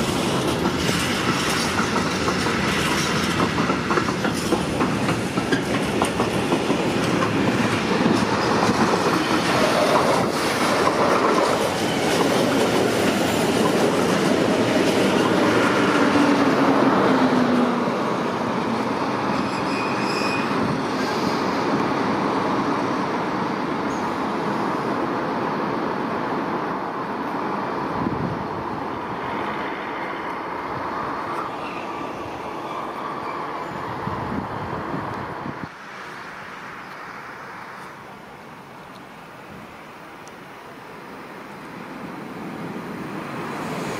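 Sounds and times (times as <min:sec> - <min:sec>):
train wheels clattering on rails: 0:00.0 - 0:17.6
high wheel squeal: 0:19.2 - 0:21.6.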